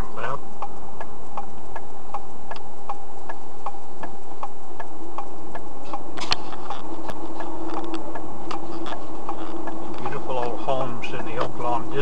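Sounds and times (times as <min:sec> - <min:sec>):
turn signal ticking: 0:00.0 - 0:12.0.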